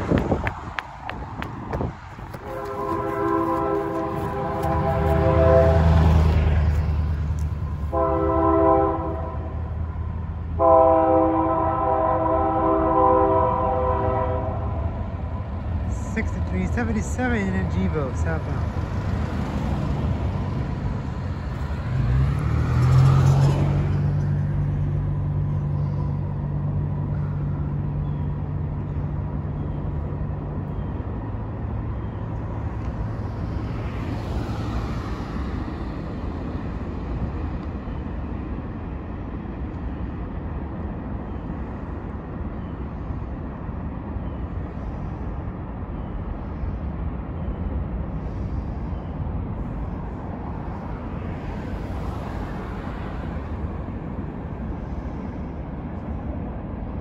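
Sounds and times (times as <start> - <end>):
low engine hum: 0.0 - 10.8
road vehicles passing: 0.0 - 57.0.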